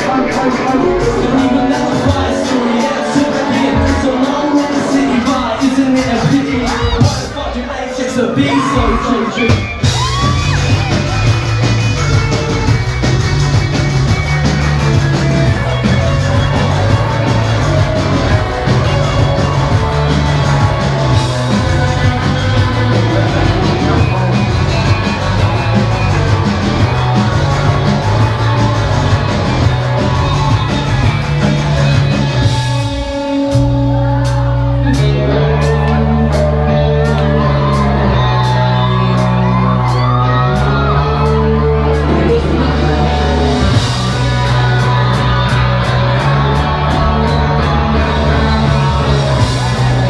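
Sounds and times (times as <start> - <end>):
heavy repeating bass line: 0.0 - 50.0
live rock band playing: 0.0 - 50.0
shouted singing vocals: 33.7 - 50.0.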